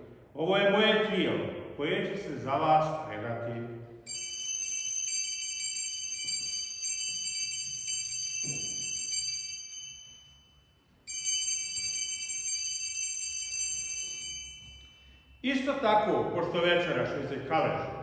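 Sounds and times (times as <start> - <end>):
altar bells ringing: 4.1 - 15.8.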